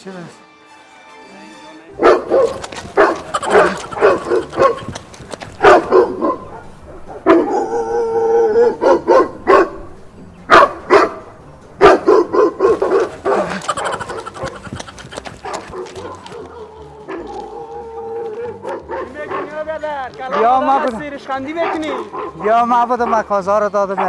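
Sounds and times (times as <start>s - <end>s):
dog barking: 2.0s - 9.9s, 10.5s - 17.6s, 18.6s - 19.7s, 20.3s - 20.9s, 21.5s - 24.0s.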